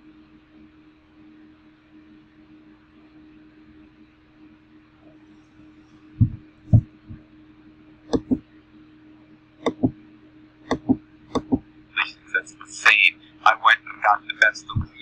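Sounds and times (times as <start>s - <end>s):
low electrical hum: 0.0s - 15.0s
dull low thumps: 6.2s - 7.3s, 8.1s - 8.4s, 9.7s - 10.0s, 10.7s - 11.6s
computer mouse clicking: 8.1s - 8.4s, 9.6s - 9.9s, 10.7s - 11.6s.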